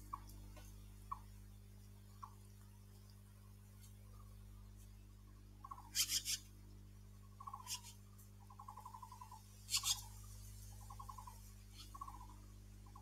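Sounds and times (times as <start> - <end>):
bird buzzy rattling chatter: 5.6 - 6.5, 7.4 - 13.0
magpie screechy alarm calls: 5.6 - 6.5, 7.4 - 10.1, 10.8 - 12.3.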